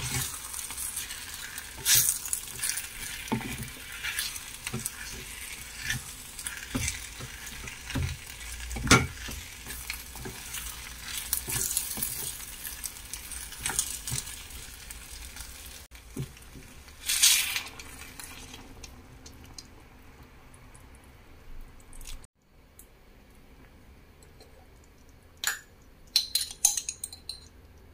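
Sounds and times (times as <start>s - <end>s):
liquid hissing in a hot pot: 0.0s - 14.2s
wooden spatula scraping and knocking: 0.0s - 14.6s
food sizzling in a pot: 0.0s - 18.9s.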